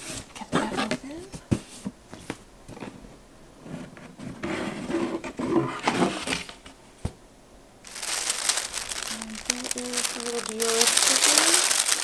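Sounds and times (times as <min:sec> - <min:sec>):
tissue paper crinkling: 0:07.9 - 0:12.0.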